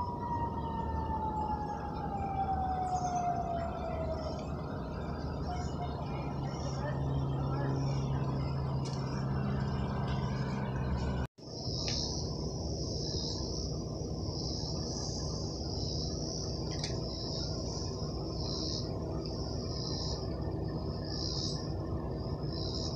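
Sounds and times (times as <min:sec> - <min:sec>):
insects droning: 0:00.0 - 0:22.9
low background rumble: 0:00.0 - 0:22.9
low engine hum: 0:00.0 - 0:22.9.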